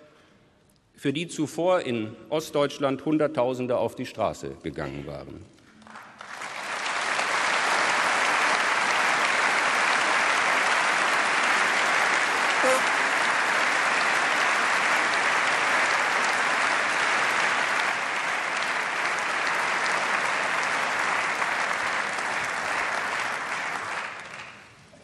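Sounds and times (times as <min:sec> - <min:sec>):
audience applauding: 0:05.8 - 0:24.8.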